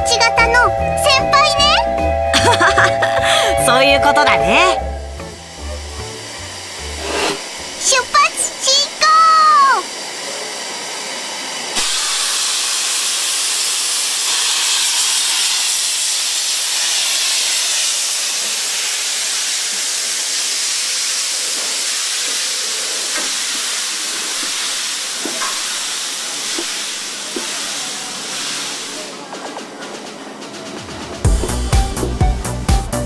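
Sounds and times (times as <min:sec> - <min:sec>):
steam venting hiss: 0:00.0 - 0:33.0
faint train clanks: 0:23.0 - 0:32.2.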